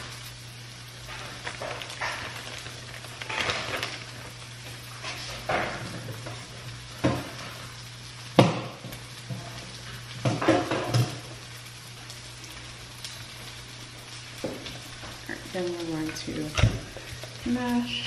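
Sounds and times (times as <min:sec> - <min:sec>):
kitchen utensils knocking and clattering: 0:10.2 - 0:11.2.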